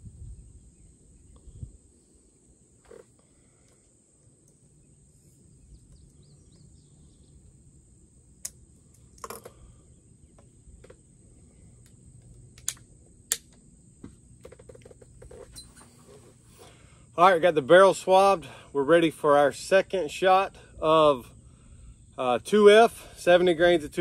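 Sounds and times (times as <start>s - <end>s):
faint high whine: 0.0s - 24.0s
rifle clicks and knocks: 9.0s - 9.6s.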